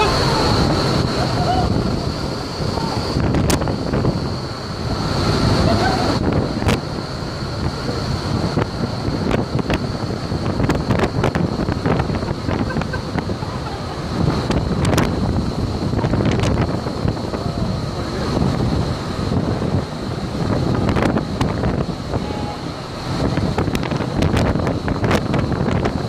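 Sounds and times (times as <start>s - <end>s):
high whine: 0.0s - 26.0s
loud rush of fan air: 0.0s - 26.0s
wind buffeting microphone: 0.0s - 26.0s.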